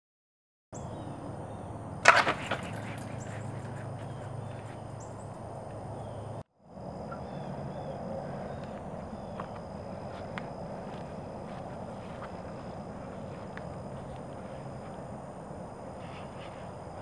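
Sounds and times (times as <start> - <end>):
wooden catapult crack and clatter: 2.0 - 3.7
high-pitched background drone: 4.0 - 17.0.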